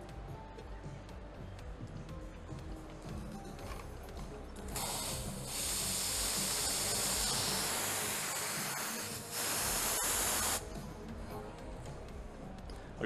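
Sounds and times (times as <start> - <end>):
steam wand hissing: 4.7 - 10.6.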